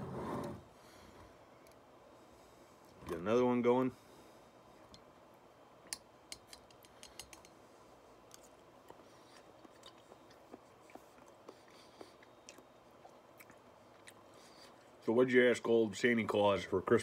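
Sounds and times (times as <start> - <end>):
mouth chewing wetly: 8.8 - 15.0.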